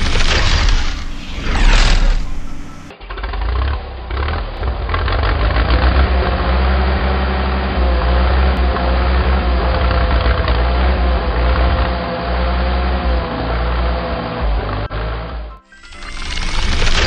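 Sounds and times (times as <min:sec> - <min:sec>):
mechanical whine: 0:00.0 - 0:05.0, 0:15.8 - 0:17.0
heavy truck engine rumbling: 0:00.0 - 0:15.6.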